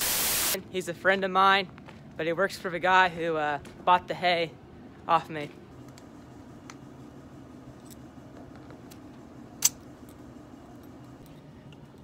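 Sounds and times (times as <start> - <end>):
short hiss of air: 0.0 - 0.6.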